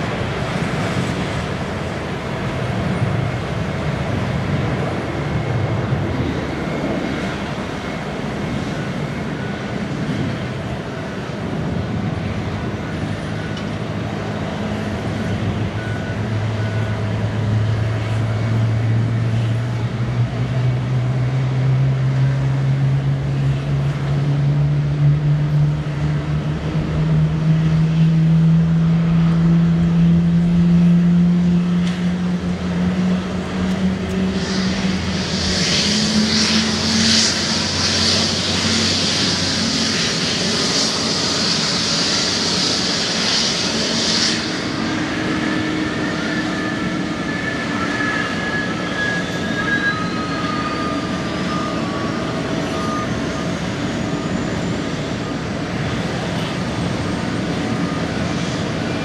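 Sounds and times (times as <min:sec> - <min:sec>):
jet engine spooling up: 0:00.0 - 0:20.0, 0:24.1 - 0:59.0
loud high hiss: 0:34.3 - 0:47.8.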